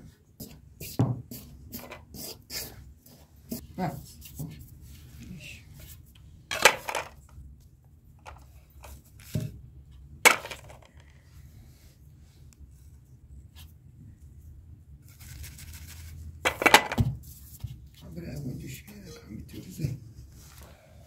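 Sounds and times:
plastic bowl knocks and clatters: 0:10.3 - 0:11.0, 0:16.5 - 0:17.2.

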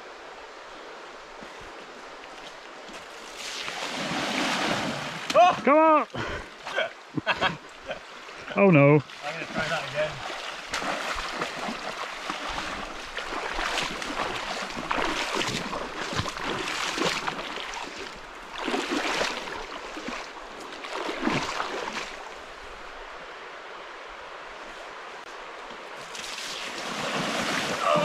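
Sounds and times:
rushing water: 0:00.0 - 0:28.0
bike splashing through stream: 0:03.0 - 0:06.0, 0:06.6 - 0:22.3, 0:26.0 - 0:28.0.

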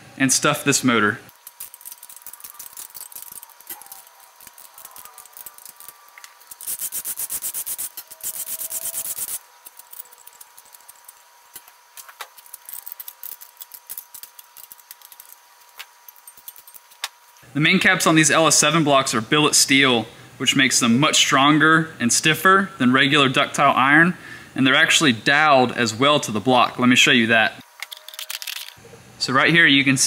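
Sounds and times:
socket ratchet clicking: 0:01.3 - 0:11.7.

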